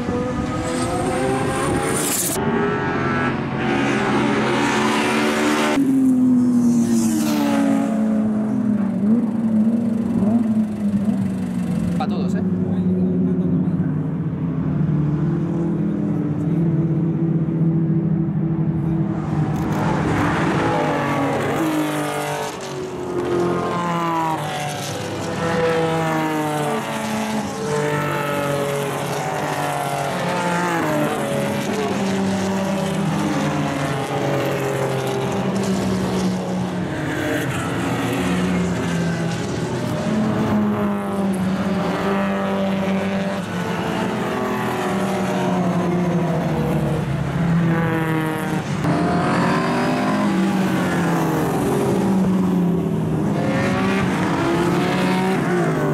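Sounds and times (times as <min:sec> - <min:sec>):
racing car engines revving: 0:00.0 - 0:55.9.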